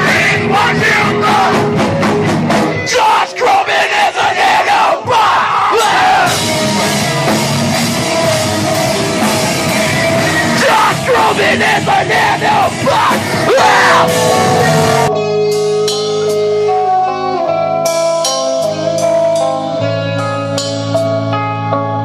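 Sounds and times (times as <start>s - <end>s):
live rock band playing: 0.0s - 22.0s
ringing guitar notes: 13.7s - 22.0s.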